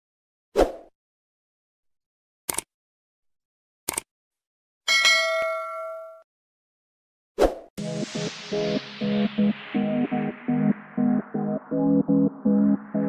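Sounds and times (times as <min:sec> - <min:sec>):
mouse click sounds: 0:02.5 - 0:02.7, 0:03.9 - 0:04.1.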